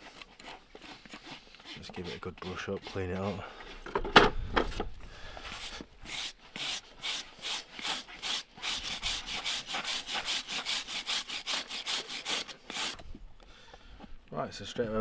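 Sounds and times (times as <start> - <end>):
stiff brush scrubbing hoof: 0.0 - 3.9, 5.4 - 13.3.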